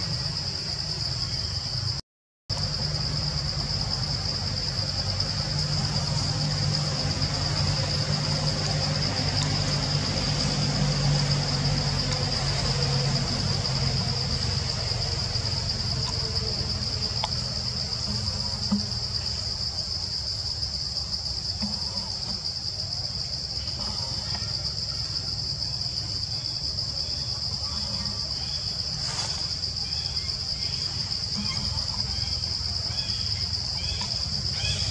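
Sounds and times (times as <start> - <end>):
cicadas buzzing: 0.0 - 34.9
low hum: 2.5 - 19.5.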